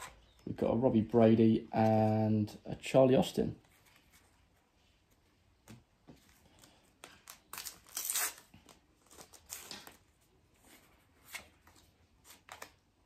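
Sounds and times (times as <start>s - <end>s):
cards rustling and clicking: 3.6s - 13.0s
wrapper crinkling and tearing: 7.2s - 10.0s.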